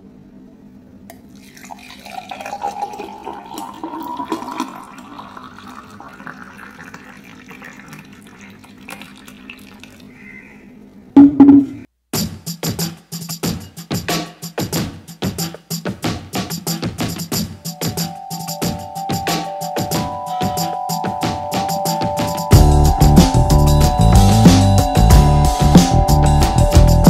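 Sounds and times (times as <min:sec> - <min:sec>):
juice pouring into a glass: 0:01.2 - 0:10.2
music with drum beat: 0:11.2 - 0:27.0.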